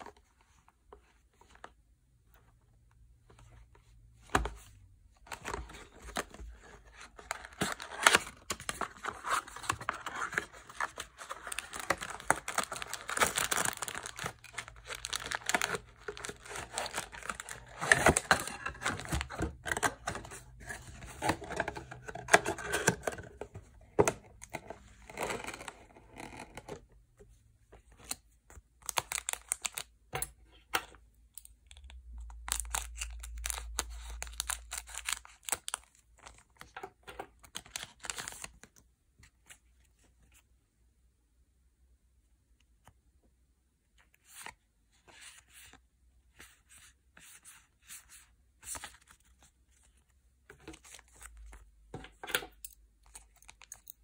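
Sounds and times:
plastic wrapping crackling and tearing: 7.2 - 19.3.

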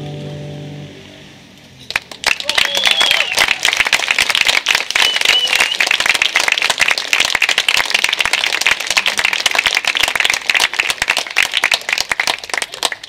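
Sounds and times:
audience applauding: 1.9 - 13.0
wavering whistle: 2.6 - 3.4, 5.0 - 5.9.

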